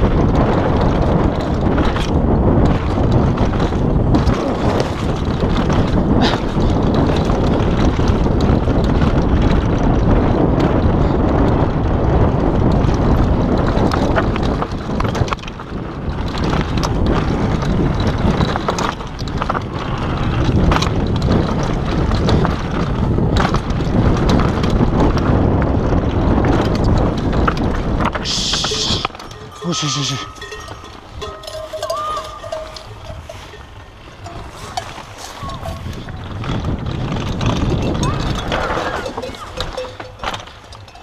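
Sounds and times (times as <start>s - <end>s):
bike knocking and rattling: 0.0s - 41.0s
tyres rumbling over dirt: 0.0s - 41.0s
wind buffeting microphone: 0.0s - 41.0s.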